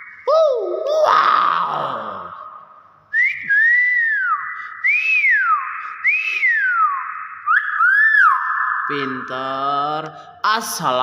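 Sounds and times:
myna whistling: 0:03.1 - 0:09.2.

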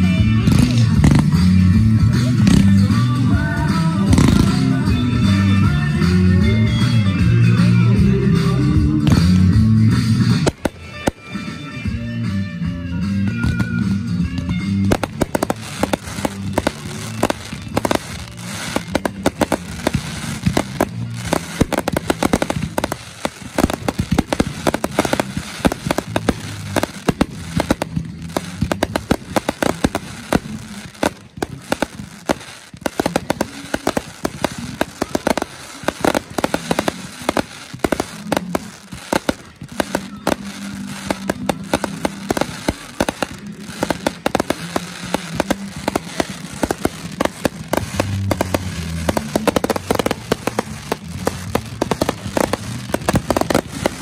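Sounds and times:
firework crackling: 0:00.0 - 0:07.7, 0:08.3 - 0:12.0, 0:13.5 - 0:54.0
firework shells bursting: 0:10.4 - 0:11.7, 0:14.9 - 0:54.0.

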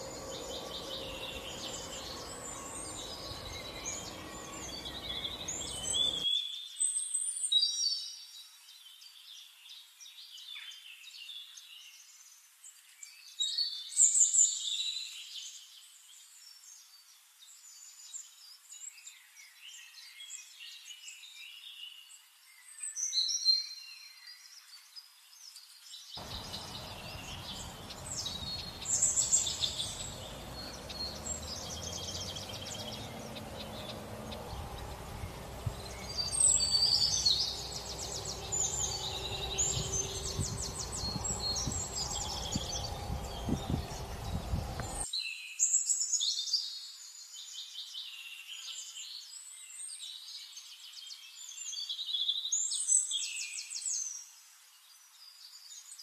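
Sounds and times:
birds chirping and trilling: 0:00.0 - 0:06.2, 0:26.2 - 0:45.1
low background hiss: 0:26.2 - 0:45.0.

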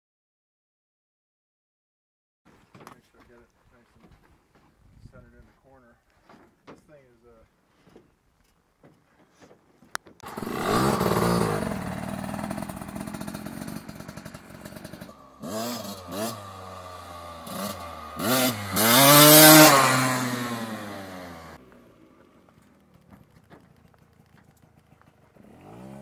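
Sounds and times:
dirt bike engine revving: 0:10.2 - 0:22.4, 0:25.1 - 0:26.0.

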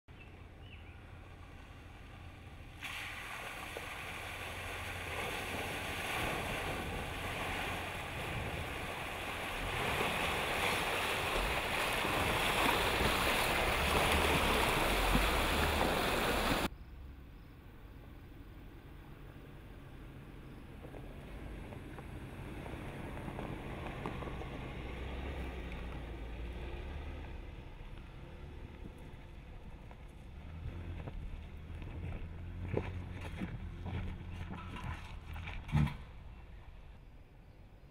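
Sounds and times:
low engine sound: 0:00.1 - 0:36.8
splashing churning water: 0:02.6 - 0:16.7.

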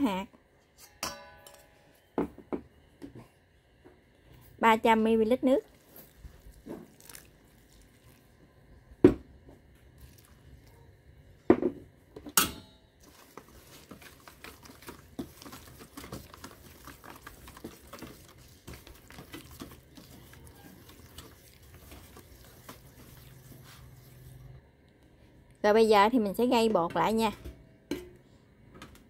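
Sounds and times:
whisk scraping a metal bowl: 0:13.0 - 0:24.6.

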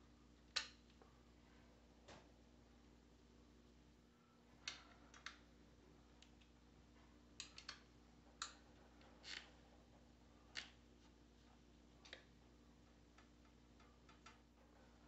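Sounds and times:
small metal clicks and taps: 0:07.4 - 0:08.6, 0:13.1 - 0:14.4.

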